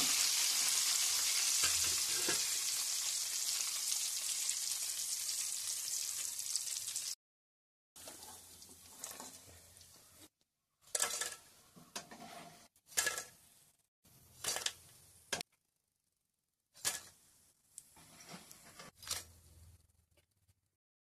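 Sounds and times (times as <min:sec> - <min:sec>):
chips clattering onto metal strainer: 0:10.9 - 0:11.4.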